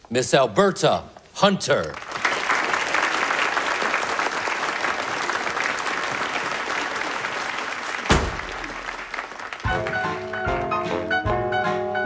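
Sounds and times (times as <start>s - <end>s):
audience applauding: 1.9s - 10.8s.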